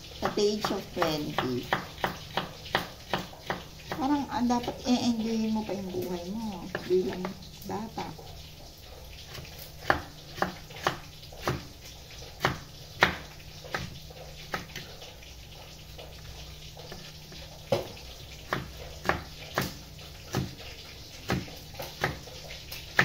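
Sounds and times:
knife chopping on wooden board: 0.2s - 4.1s, 6.7s - 7.4s, 9.3s - 11.7s, 12.4s - 14.9s, 17.7s - 20.6s, 21.2s - 23.0s.

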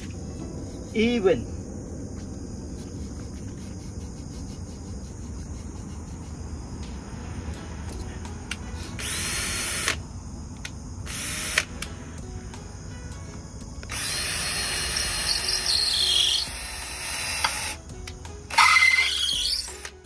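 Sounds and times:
power drill whining: 9.0s - 10.0s, 13.9s - 17.8s, 18.5s - 20.0s.

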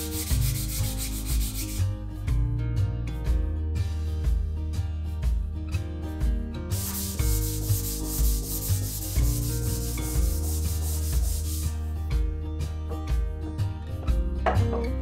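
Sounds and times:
sanding wood: 0.0s - 1.8s, 6.7s - 11.8s
background music: 0.0s - 15.0s.

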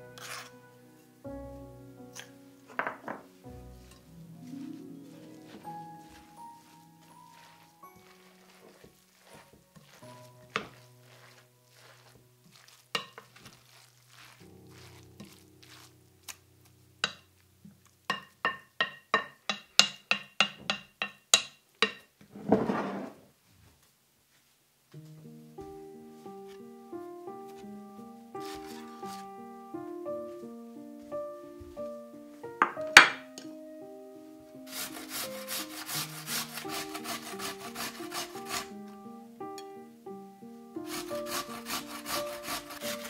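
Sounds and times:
potato grated on metal grater: 0.2s - 0.5s, 7.3s - 15.9s, 28.4s - 29.2s, 34.7s - 38.8s, 40.8s - 43.0s
plate knocking on wooden board: 2.8s - 3.2s
wooden spoon clinking glass bowl: 5.4s - 15.9s
brief scraping: 22.4s - 23.2s.

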